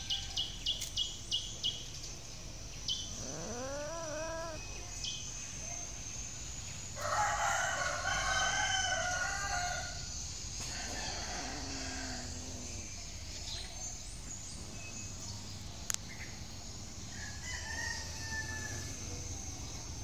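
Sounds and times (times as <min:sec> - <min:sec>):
rooster crowing: 0:03.2 - 0:04.6, 0:07.0 - 0:10.1, 0:10.7 - 0:12.7, 0:17.1 - 0:18.9.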